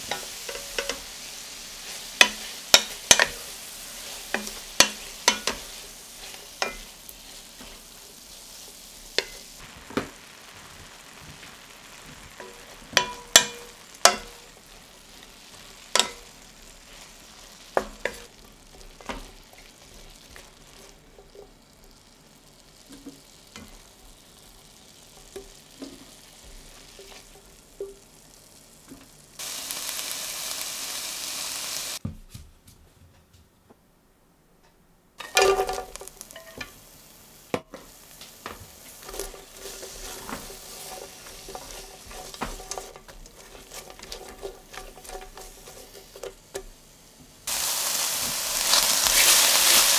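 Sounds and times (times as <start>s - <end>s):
spatula scraping a pan: 0.0s - 9.6s, 11.6s - 21.5s, 25.1s - 27.9s, 37.6s - 46.7s
steak sizzling in oil: 0.0s - 32.0s, 35.3s - 49.9s.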